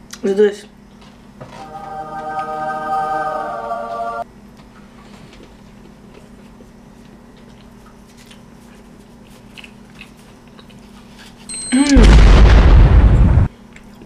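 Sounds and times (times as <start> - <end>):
low room hum: 0.0 - 14.0
person chewing: 5.4 - 11.5, 13.6 - 14.0
high steady beep: 11.5 - 11.9.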